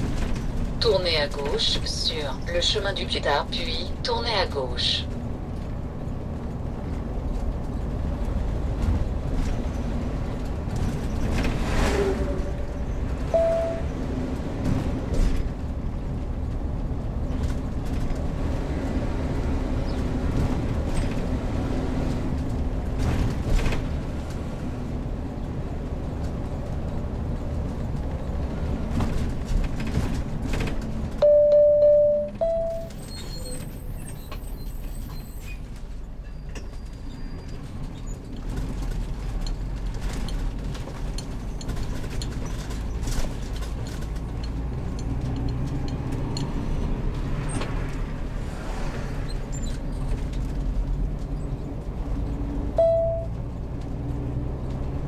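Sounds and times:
vehicle engine and road rumble: 0.0 - 55.0
short single beep: 13.4 - 13.9, 31.2 - 33.0, 52.8 - 53.4
two-note beep: 13.4 - 13.9, 31.2 - 33.0, 52.8 - 53.3.

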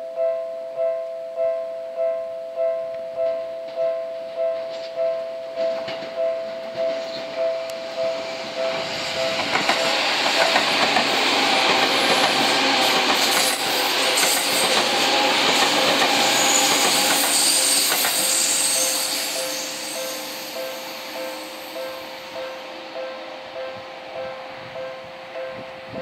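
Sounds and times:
train passing at speed: 3.9 - 26.0
wheels clicking over rail joints: 9.3 - 18.2.

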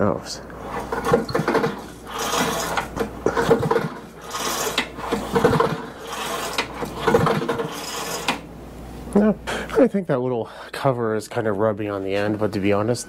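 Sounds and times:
starter rubbing on cover: 0.6 - 8.4
pull-starter cord whirring: 0.8 - 8.5.

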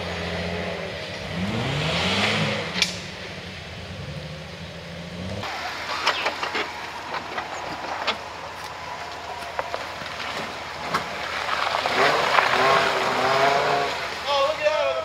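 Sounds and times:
squealing tones: 5.4 - 11.2.

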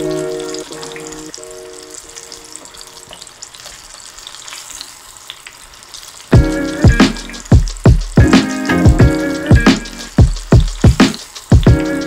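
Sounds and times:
food deep-frying in oil: 0.0 - 12.0
loud music: 6.4 - 12.0.

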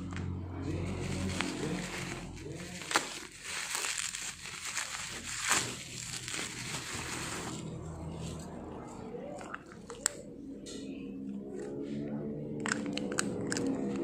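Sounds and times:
plastic packaging crinkling: 0.8 - 8.2.

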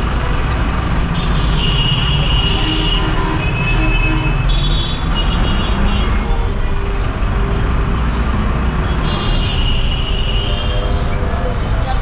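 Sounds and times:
bus engine idling: 0.0 - 1.1
car horns: 1.2 - 6.6.

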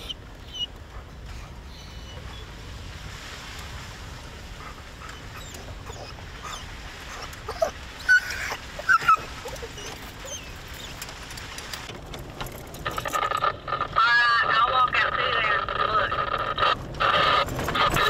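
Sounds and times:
hounds whining and yelping: 0.0 - 2.6, 4.6 - 11.9.

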